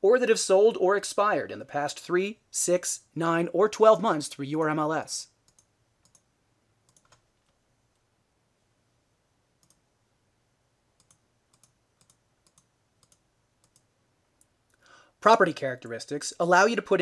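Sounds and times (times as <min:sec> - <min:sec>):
computer mouse clicks: 0:05.5 - 0:08.0, 0:09.6 - 0:09.8, 0:11.0 - 0:14.5.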